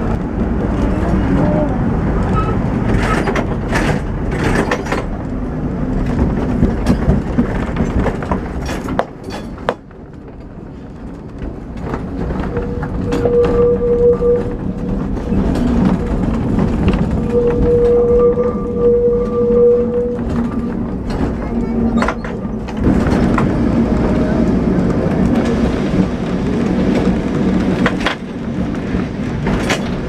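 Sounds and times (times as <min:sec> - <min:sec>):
tram rumbling on rails: 0:00.0 - 0:30.0
high wheel squeal: 0:12.4 - 0:15.7, 0:17.1 - 0:20.8.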